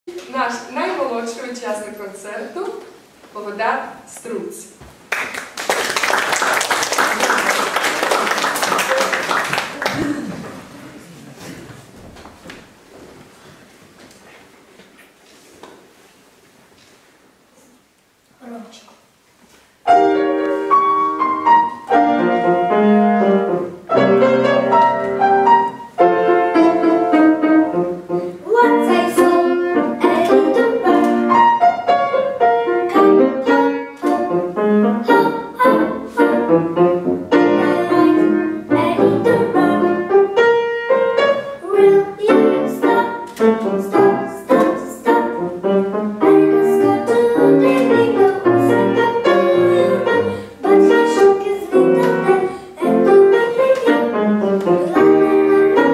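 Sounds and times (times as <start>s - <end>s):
grand piano accompaniment: 19.8s - 55.9s
young boy singing: 28.4s - 31.3s, 35.0s - 36.5s, 37.4s - 40.1s, 41.6s - 45.5s, 46.2s - 55.9s.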